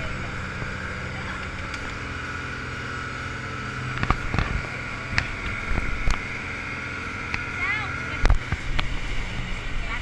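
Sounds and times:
motorboat engine drone: 0:00.0 - 0:10.0
wind: 0:00.0 - 0:10.0.

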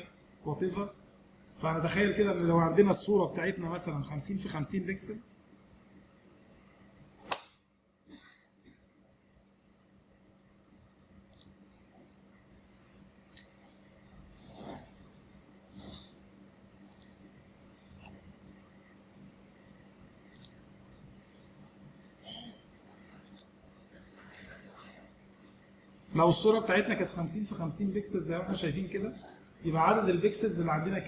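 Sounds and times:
low steady hum: 0:00.0 - 0:31.0.

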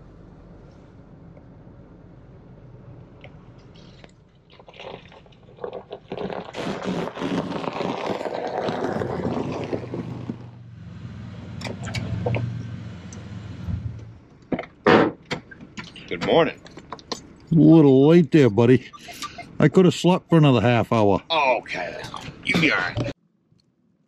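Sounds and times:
low engine hum: 0:00.0 - 0:04.2, 0:09.0 - 0:14.6
car tyres crunching over snow: 0:03.3 - 0:14.3.

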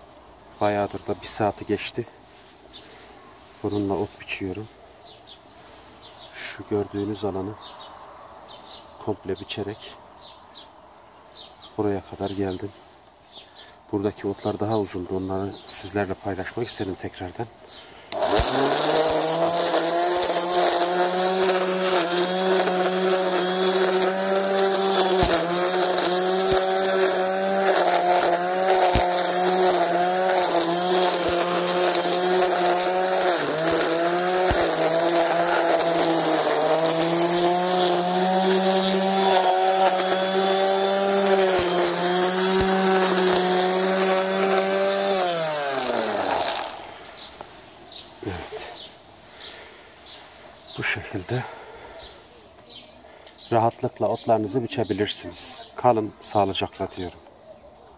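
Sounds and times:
trimmer line ticking on stems: 0:18.1 - 0:47.6
string trimmer motor whine: 0:18.1 - 0:49.9.

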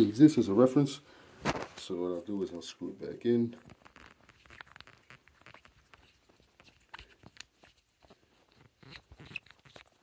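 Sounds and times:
plastic nut clicking and rubbing: 0:03.6 - 0:10.0.

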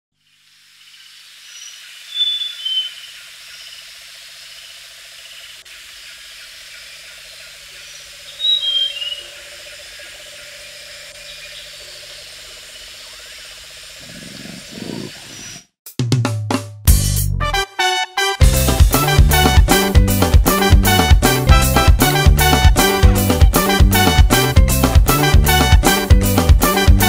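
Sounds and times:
insect drone: 0:00.2 - 0:15.6
bird whistled calls: 0:01.5 - 0:03.8, 0:08.3 - 0:09.4.

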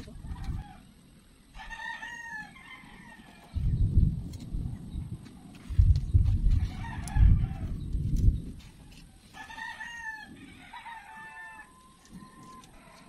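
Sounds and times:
rooster crowing: 0:01.5 - 0:03.6, 0:06.6 - 0:07.8, 0:08.9 - 0:13.0
low rumbling on microphone: 0:03.6 - 0:08.8.

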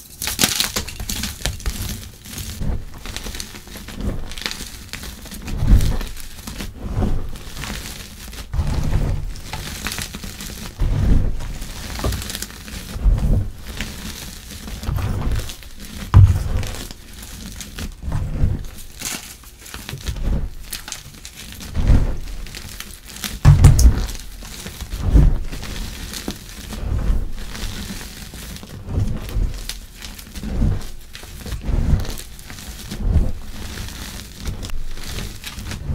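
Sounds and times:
chalk crunching and crumbling by hand: 0:00.0 - 0:35.9
soft low thud: 0:16.2 - 0:16.8, 0:23.5 - 0:24.2.

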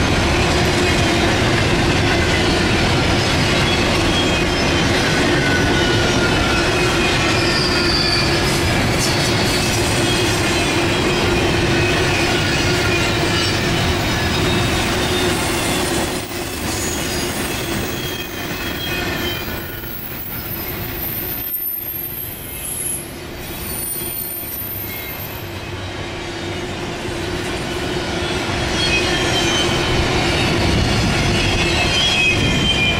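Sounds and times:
freight train rumbling: 0:00.0 - 0:32.9
wheels squealing: 0:01.9 - 0:25.8.

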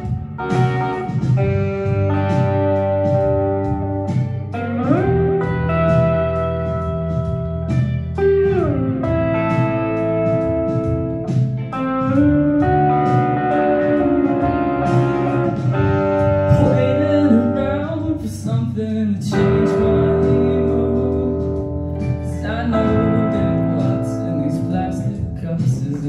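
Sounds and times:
electric guitar through amplifier: 0:00.0 - 0:26.0
man singing: 0:16.4 - 0:26.0.

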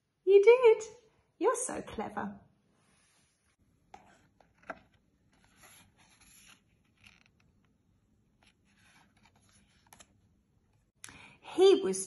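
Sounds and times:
paper rustling: 0:04.3 - 0:07.6.

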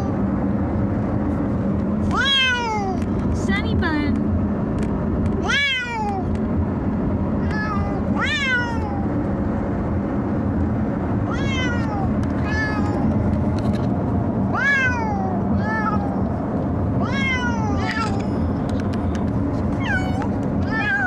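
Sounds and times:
car rumble: 0:00.0 - 0:21.0
cats meowing: 0:02.1 - 0:03.0, 0:05.4 - 0:06.3, 0:07.4 - 0:09.0, 0:11.3 - 0:13.1, 0:14.5 - 0:16.3, 0:17.0 - 0:18.3, 0:19.8 - 0:21.0.

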